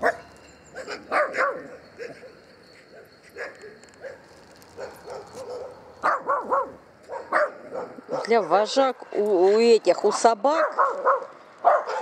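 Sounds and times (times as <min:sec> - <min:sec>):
dog yelping: 0:00.8 - 0:02.4, 0:04.8 - 0:08.6, 0:10.2 - 0:12.0.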